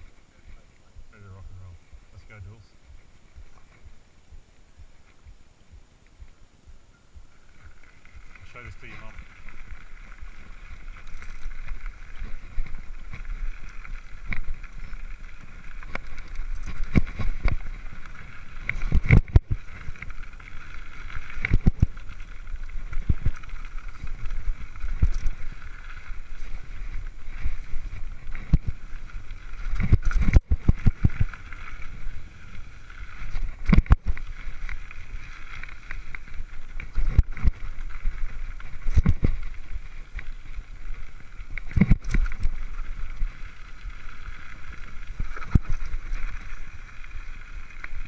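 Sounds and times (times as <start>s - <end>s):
bike tyres rushing on dirt: 0.0s - 48.0s
bike thumping and rattling: 9.4s - 46.7s.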